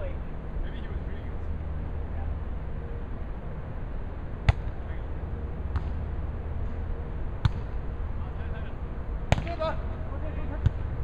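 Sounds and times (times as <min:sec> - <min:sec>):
steady low rumble: 0:00.0 - 0:11.0
volleyball struck by hands: 0:04.4 - 0:04.8, 0:05.7 - 0:06.0, 0:07.4 - 0:07.8, 0:09.3 - 0:09.6, 0:10.6 - 0:11.0.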